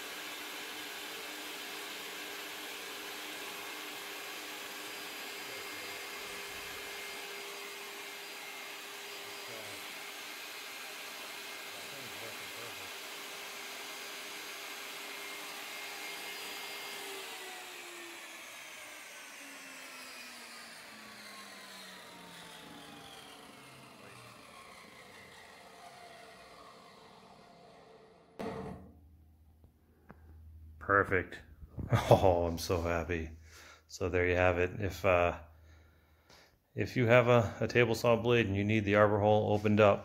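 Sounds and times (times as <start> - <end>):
saw blade coasting down: 0.0 - 28.9
table saw whining: 0.0 - 29.0.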